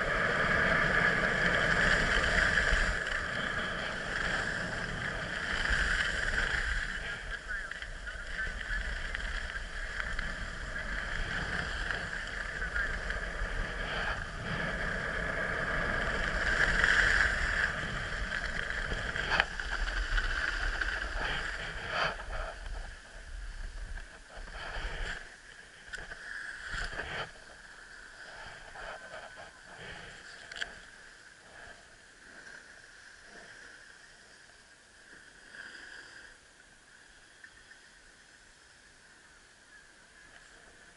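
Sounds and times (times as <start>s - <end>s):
skis scraping over snow: 0.0s - 30.9s.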